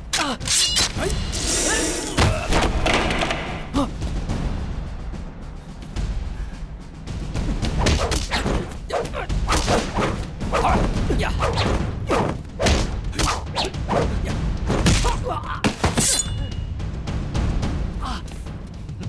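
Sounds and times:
punches and thuds: 7.4 - 16.1.

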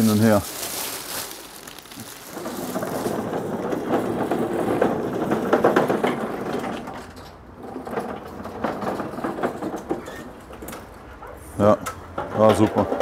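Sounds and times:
pallet truck rattling over paving: 0.0 - 13.0.

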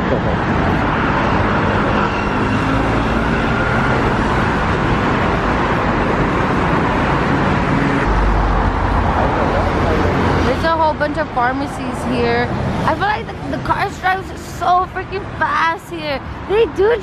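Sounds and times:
cars driving on busy street: 0.0 - 17.0.

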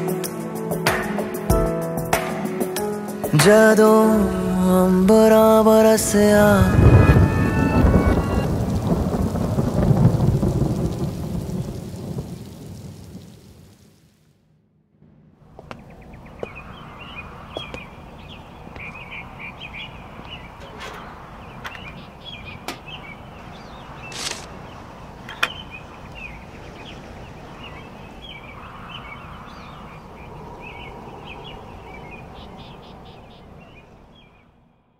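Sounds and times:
outdoor ambience: 0.0 - 34.9
small birds chirping: 15.6 - 34.6
brief swish: 24.1 - 24.5
sharp clicks: 24.1 - 24.5.

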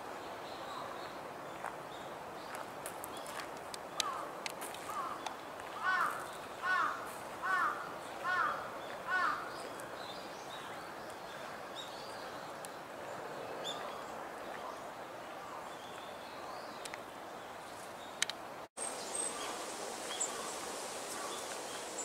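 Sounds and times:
steady background noise: 0.0 - 22.0
crow cawing: 5.8 - 9.4
small birds chirping: 13.6 - 22.0.

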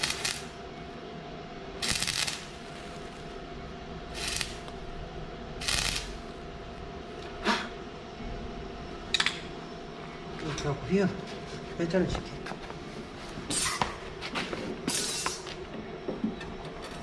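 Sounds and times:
welding arc crackling: 0.0 - 0.6, 1.8 - 7.2.

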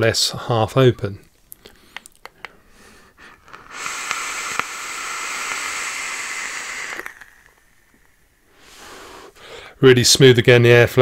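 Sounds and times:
vape hissing draw: 2.8 - 9.5.

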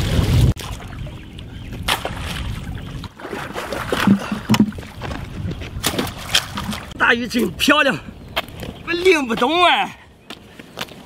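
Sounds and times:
fish splashing in bucket: 3.1 - 5.0.

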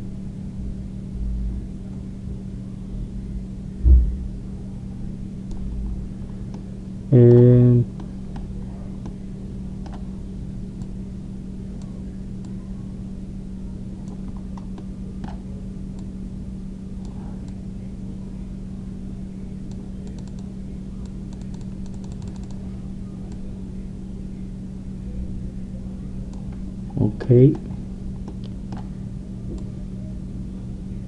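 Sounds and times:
low electrical hum: 0.0 - 31.0
computer mouse clicks: 9.8 - 10.0, 14.0 - 15.4, 19.7 - 22.6, 28.2 - 28.9
keyboard keystrokes: 21.3 - 22.6.

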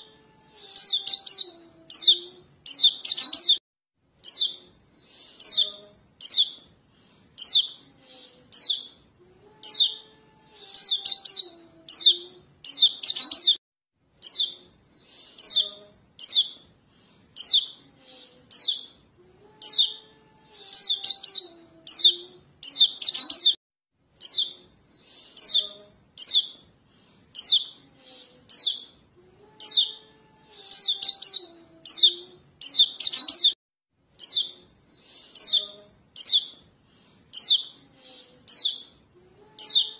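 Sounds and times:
young bird chirping: 0.6 - 3.6, 4.2 - 6.7, 7.4 - 9.0, 9.6 - 13.6, 14.2 - 16.6, 17.4 - 19.0, 19.6 - 23.6, 24.2 - 26.6, 27.3 - 29.0, 29.6 - 33.6, 34.2 - 36.6, 37.3 - 39.0, 39.6 - 39.9.

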